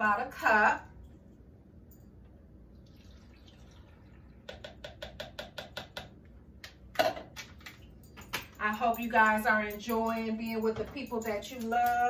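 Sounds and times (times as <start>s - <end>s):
juice pouring over ice: 2.8s - 4.5s.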